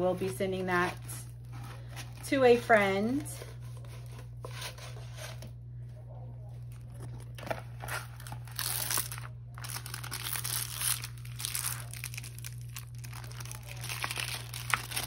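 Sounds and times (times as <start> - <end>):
plastic film crinkling: 6.7 - 15.0.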